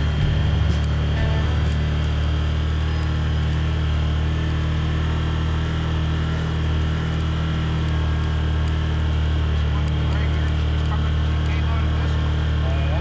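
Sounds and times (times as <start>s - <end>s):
utility vehicle engine running: 0.0s - 13.0s.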